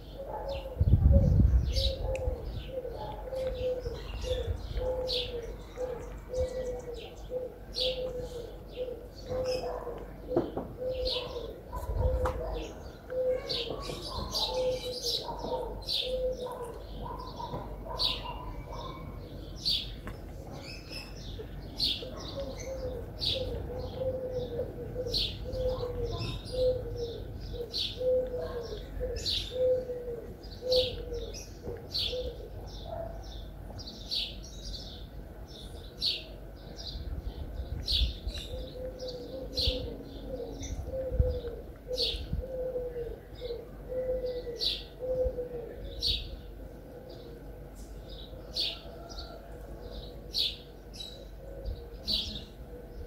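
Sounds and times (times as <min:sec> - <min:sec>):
dove cooing: 0:00.0 - 0:19.3, 0:21.8 - 0:33.1, 0:38.1 - 0:47.4, 0:48.2 - 0:53.0
small birds chirping: 0:00.0 - 0:42.4.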